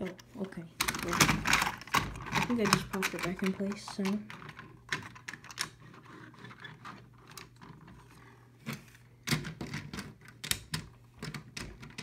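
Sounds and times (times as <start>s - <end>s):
model train cars clicking: 0.8s - 4.3s.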